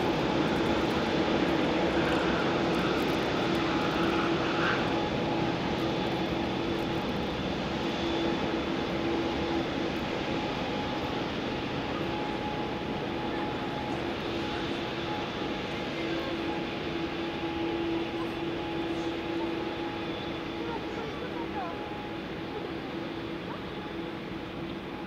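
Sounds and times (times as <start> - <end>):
jet engines running at low power: 0.0 - 25.0.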